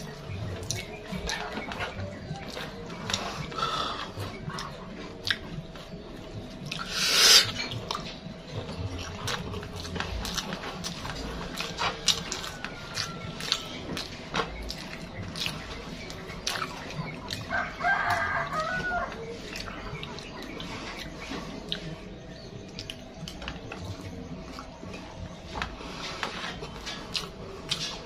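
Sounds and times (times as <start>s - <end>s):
chewing and lip smacks: 0.0s - 25.6s, 26.7s - 28.0s
rooster crowing: 17.5s - 19.2s.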